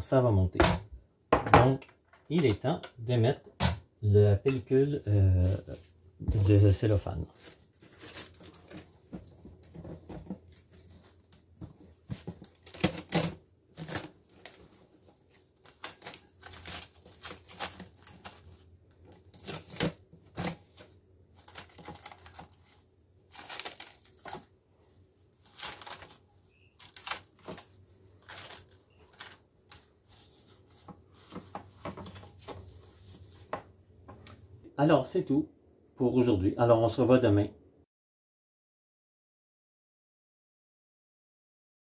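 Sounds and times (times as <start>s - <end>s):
cling film crinkling: 6.6s - 24.5s, 25.2s - 33.3s.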